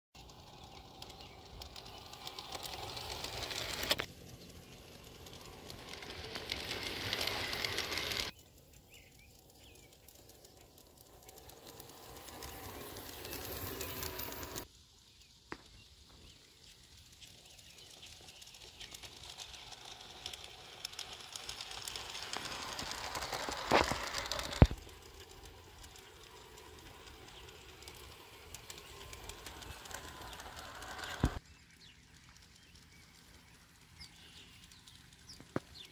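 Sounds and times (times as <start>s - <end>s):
electric motor hum: 0.2s - 8.3s, 18.3s - 31.4s
model train wheels rolling: 0.2s - 35.9s.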